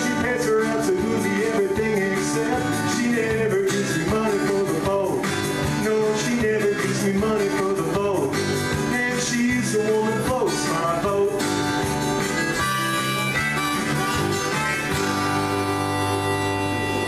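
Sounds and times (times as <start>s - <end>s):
strummed acoustic guitar: 0.0s - 17.0s
harmonica long notes: 11.6s - 17.0s.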